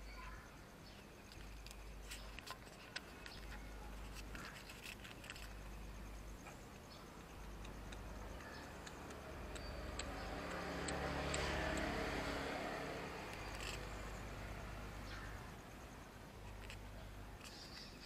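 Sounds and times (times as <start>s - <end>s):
vehicle passing by: 8.7s - 15.6s.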